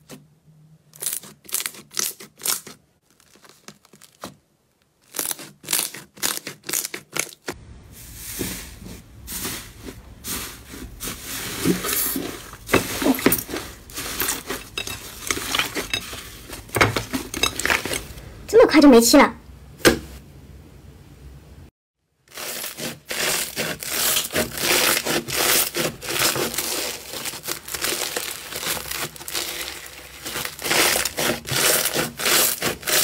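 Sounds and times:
foam slime crunchy crackling: 1.0s - 7.6s, 9.2s - 18.0s, 22.2s - 33.0s.

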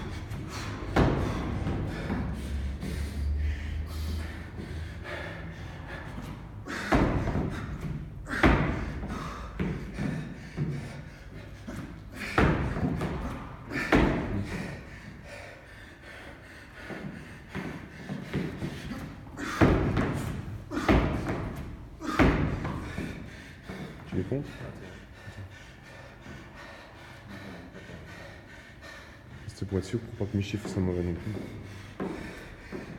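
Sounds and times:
feet thumping on wooden box: 0.0s - 5.2s, 5.8s - 15.2s, 16.8s - 24.8s, 30.6s - 32.9s.

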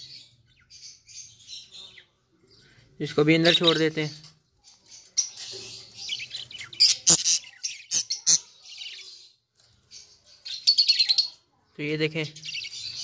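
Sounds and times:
budgerigars chirping: 3.2s - 4.2s, 12.4s - 13.0s.

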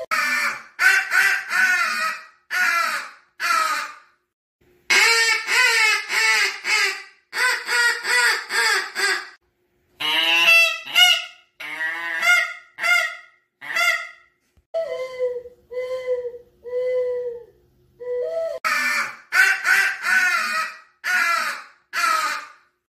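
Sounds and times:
goose call honks: 10.0s - 14.2s.

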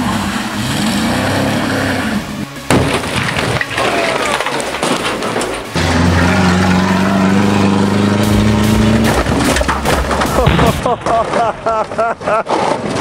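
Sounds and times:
engine at high revs: 0.0s - 2.5s, 5.8s - 10.4s
clattering debris: 2.6s - 7.1s, 8.5s - 13.0s
vehicle crashing with crunching impacts: 2.6s - 13.0s.

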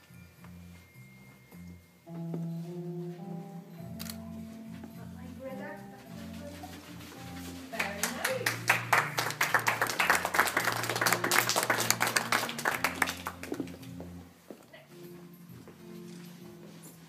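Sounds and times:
quiet music: 0.0s - 17.0s
audience applauding: 7.7s - 13.9s.

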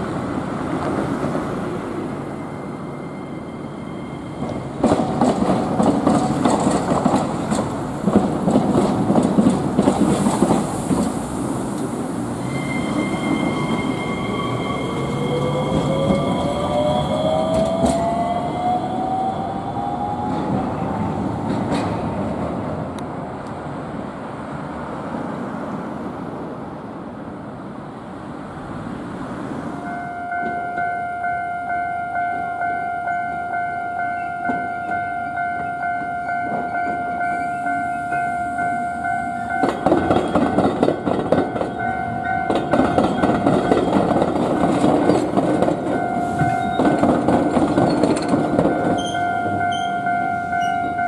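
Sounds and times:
tram wheels clattering over rails: 3.9s - 23.3s, 34.2s - 51.0s.

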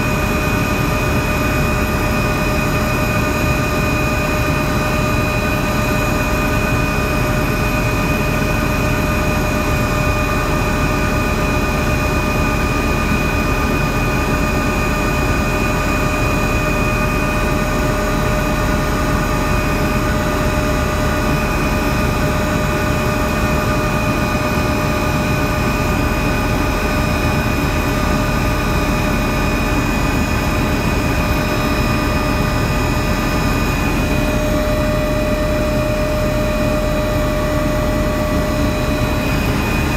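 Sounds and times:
helicopter rotor rush: 0.0s - 39.9s
helicopter turbine whine: 0.0s - 39.9s.

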